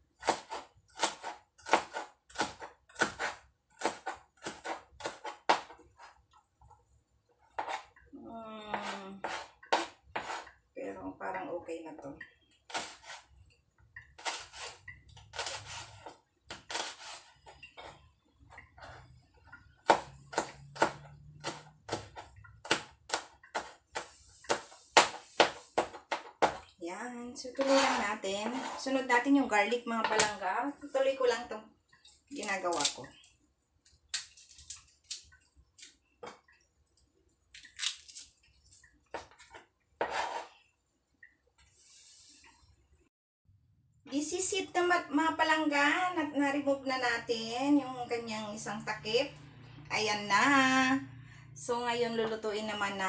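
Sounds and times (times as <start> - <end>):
knife chopping on a cutting board: 0.2 - 5.8, 8.7 - 10.5, 14.2 - 17.2, 19.8 - 26.7
garlic skins crackling: 34.0 - 36.0, 37.5 - 38.4.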